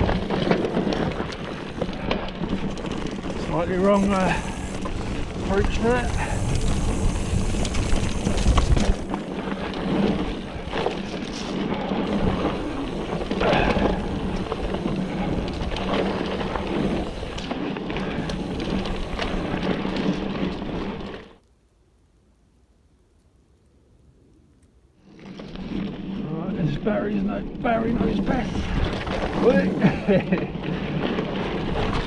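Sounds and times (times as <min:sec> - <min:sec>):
wind buffeting microphone: 0:00.0 - 0:20.9, 0:27.4 - 0:32.0
bike rattling: 0:00.0 - 0:21.4, 0:25.0 - 0:32.0
bike tyre roar on dirt: 0:00.0 - 0:21.5, 0:25.0 - 0:32.0.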